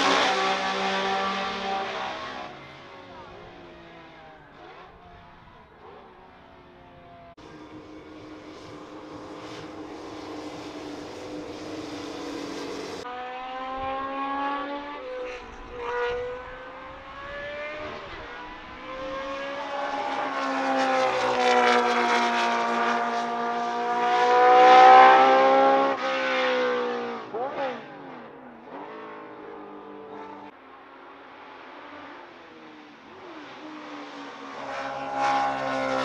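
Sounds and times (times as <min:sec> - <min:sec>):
racing engine running: 0:00.0 - 0:30.5.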